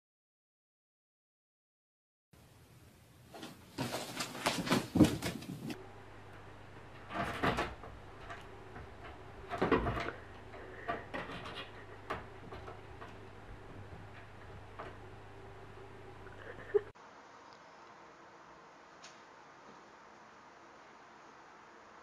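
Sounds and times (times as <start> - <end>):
door clicking and rattling: 6.8 - 15.2
bumps and knocks: 7.0 - 15.0.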